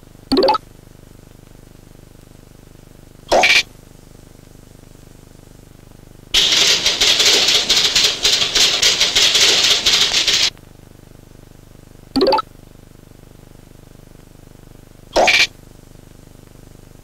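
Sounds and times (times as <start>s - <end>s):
cartoon rattling hissing noise: 6.4s - 10.5s.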